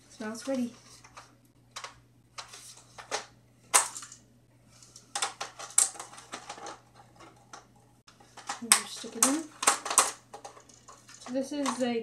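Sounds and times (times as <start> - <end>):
plastic clicks and rattles: 1.0 - 4.2, 4.8 - 12.0.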